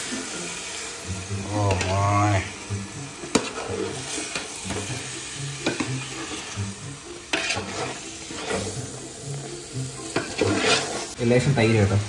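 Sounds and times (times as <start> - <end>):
food sizzling: 0.0 - 12.0
ladle scraping in a pot: 3.2 - 11.2.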